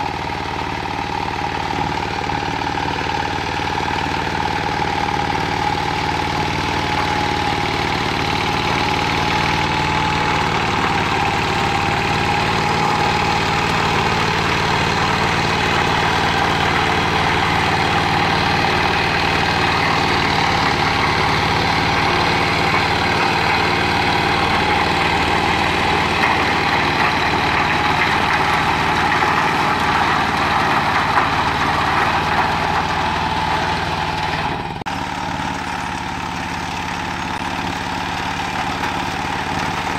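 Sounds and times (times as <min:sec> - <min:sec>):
rotary tiller in soil: 0:00.0 - 0:39.9
tractor engine running steadily: 0:00.0 - 0:39.9.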